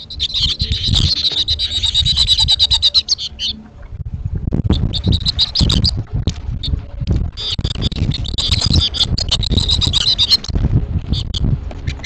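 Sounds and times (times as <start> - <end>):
finches chattering and twittering: 0.0 - 3.6
irregular low rumble: 0.0 - 12.0.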